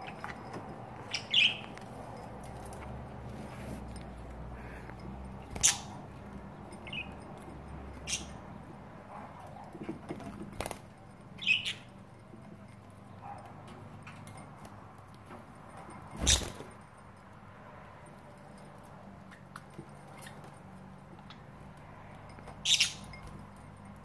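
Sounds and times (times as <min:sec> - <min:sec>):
budgie chirping: 0:01.0 - 0:01.8, 0:04.6 - 0:07.3, 0:07.9 - 0:08.5, 0:11.3 - 0:12.0, 0:22.6 - 0:23.2
wings fluttering: 0:05.4 - 0:06.1, 0:16.1 - 0:16.8.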